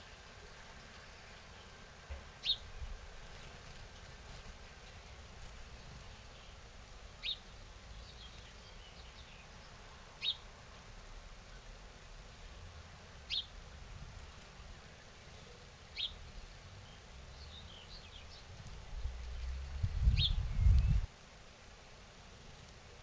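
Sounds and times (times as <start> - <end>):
faint chirps of other birds: 0.0 - 10.6, 13.2 - 13.6, 14.2 - 21.1
songbird chirping: 0.0 - 10.8, 13.2 - 13.6, 14.2 - 21.1.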